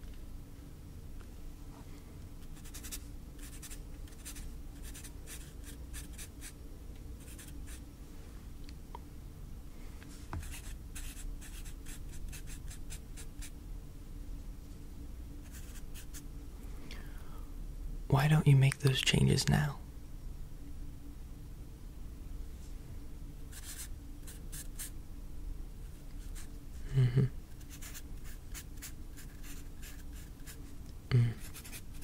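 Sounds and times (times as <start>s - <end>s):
pen scratching on paper: 2.6s - 6.5s, 10.4s - 13.5s, 23.6s - 24.9s, 27.6s - 30.6s, 31.4s - 32.0s.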